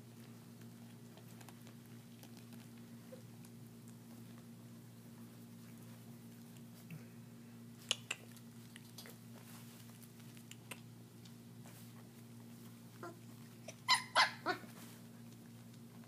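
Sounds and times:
steady low hum: 0.0s - 16.0s
puppies yelping: 13.0s - 14.7s.

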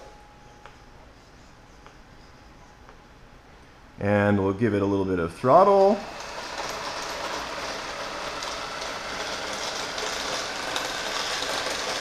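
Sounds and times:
electric motor running: 5.5s - 12.0s.

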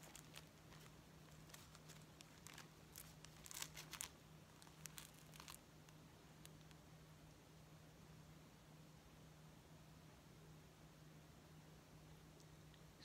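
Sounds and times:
package and cloth crinkling: 0.0s - 6.8s
faint low hum: 0.0s - 13.0s.

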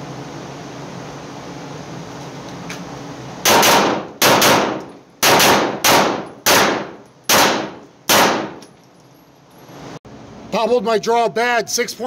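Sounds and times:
pistol shots indoors: 3.4s - 8.7s.

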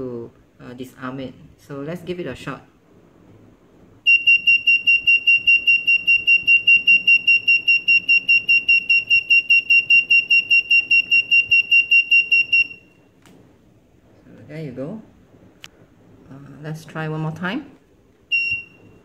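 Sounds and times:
rapid high beeping siren: 4.1s - 12.9s.

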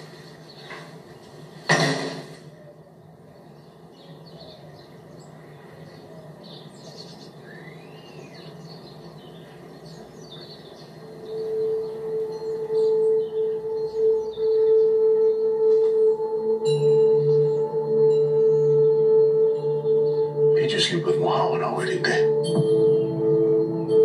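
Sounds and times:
faint bird chirps: 2.5s - 22.4s
low hum: 7.3s - 24.0s
held bell-like music tone: 11.0s - 24.0s.

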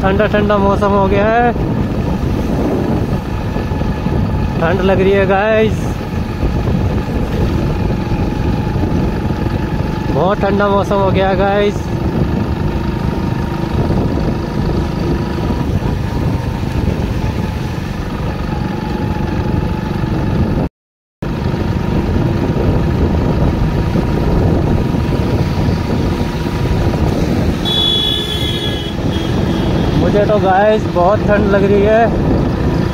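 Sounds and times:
motorcycle riding rumble: 0.0s - 32.9s.

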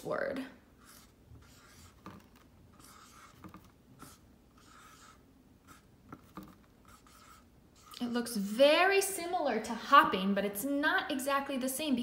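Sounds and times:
marker writing on whiteboard: 0.8s - 8.1s.

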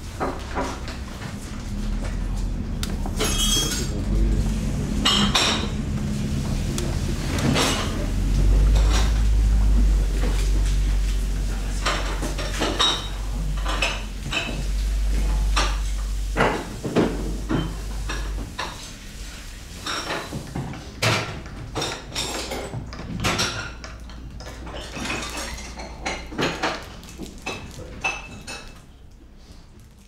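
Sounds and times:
crockery and cutlery clinking: 3.1s - 6.0s, 7.0s - 19.0s.

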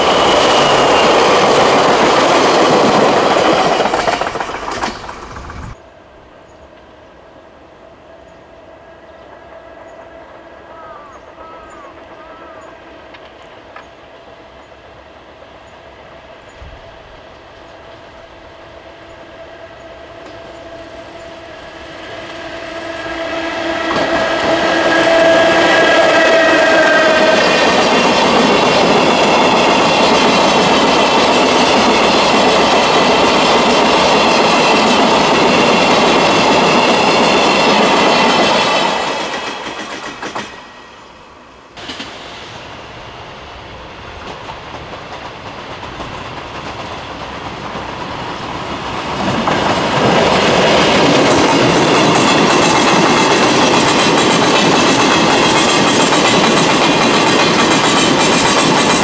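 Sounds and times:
freight train wheels clattering: 0.0s - 5.8s, 20.2s - 40.8s, 44.0s - 59.0s.

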